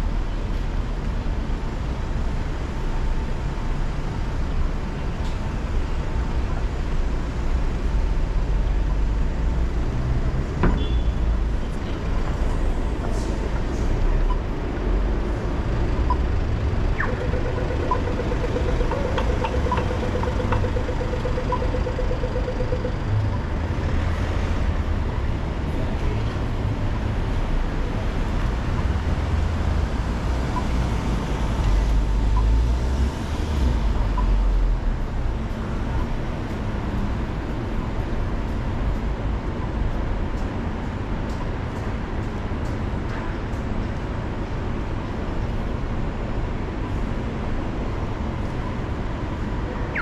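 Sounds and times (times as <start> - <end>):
traffic rumble: 0.0 - 50.0
rapid pulsing tone: 16.8 - 23.3.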